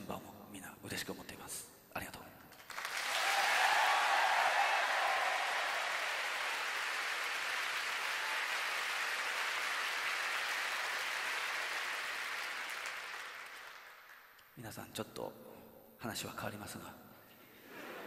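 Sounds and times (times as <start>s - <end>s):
audience applauding: 2.5s - 14.4s.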